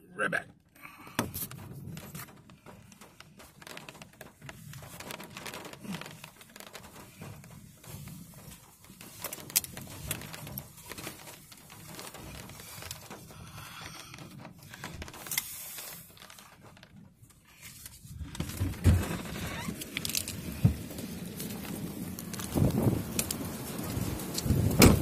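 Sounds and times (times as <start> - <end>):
microphone handling noise: 18.1 - 25.0.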